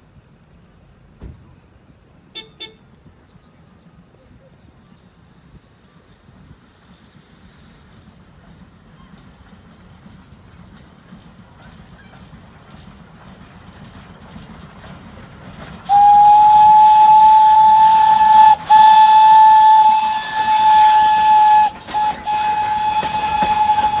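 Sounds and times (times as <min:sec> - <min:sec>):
low train rumble: 0:00.0 - 0:24.0
steam whistle blasts: 0:15.9 - 0:24.0.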